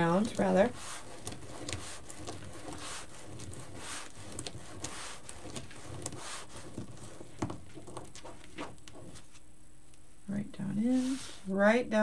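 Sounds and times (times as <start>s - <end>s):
mesh rustling and crinkling: 0.0s - 9.6s.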